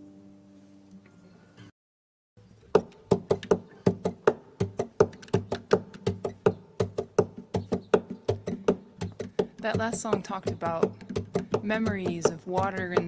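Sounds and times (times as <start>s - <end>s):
rhythmic knocking on wood: 2.7s - 13.0s.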